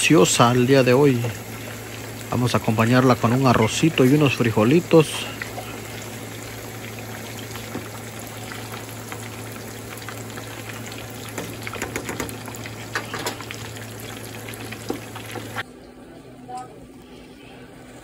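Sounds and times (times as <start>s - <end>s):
fish frying in hot oil: 0.0s - 15.6s
oil crackling and popping: 5.2s - 15.6s.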